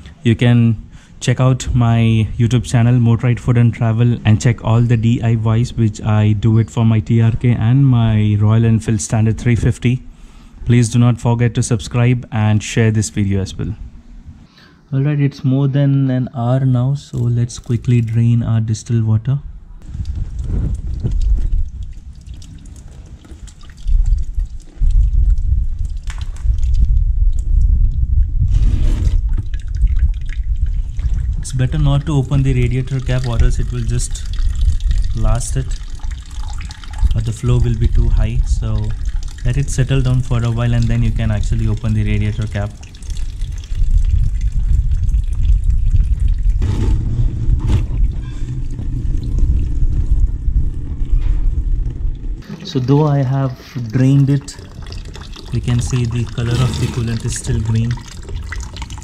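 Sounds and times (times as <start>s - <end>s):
heavy low rumble: 19.1s - 36.3s, 36.9s - 54.4s
water dripping into plastic bucket: 19.8s - 28.4s, 29.2s - 46.6s, 51.8s - 59.0s.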